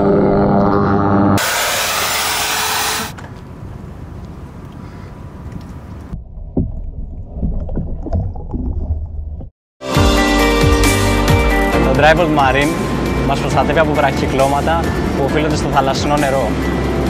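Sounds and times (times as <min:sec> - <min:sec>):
loud rushing hiss: 0:01.4 - 0:03.2.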